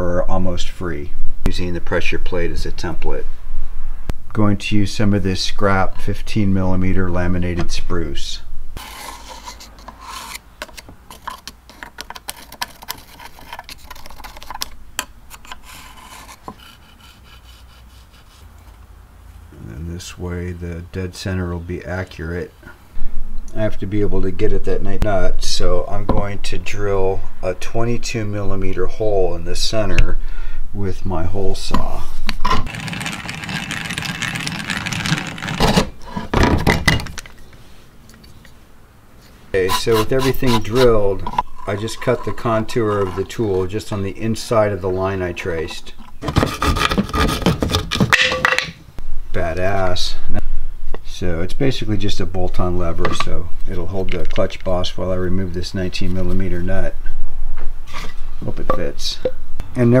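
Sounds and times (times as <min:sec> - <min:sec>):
pencil rubbing scrape: 0:08.8 - 0:10.5, 0:11.1 - 0:14.6, 0:15.4 - 0:18.5, 0:32.6 - 0:36.3, 0:39.6 - 0:43.8, 0:46.2 - 0:48.0.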